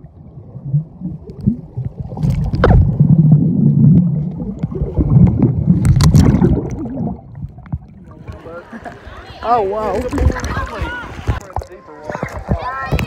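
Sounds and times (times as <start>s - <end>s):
underwater rumble of moving water: 0.0s - 9.2s.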